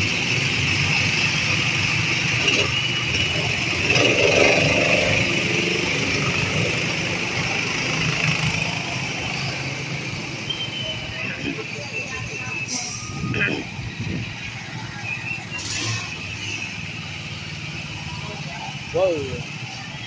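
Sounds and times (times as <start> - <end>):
go-kart engines running: 0.0 - 12.7, 13.3 - 20.0.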